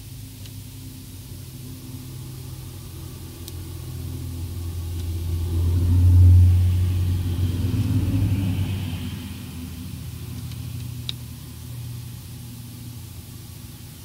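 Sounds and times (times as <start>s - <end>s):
passing vehicle rumble: 0.8s - 14.0s.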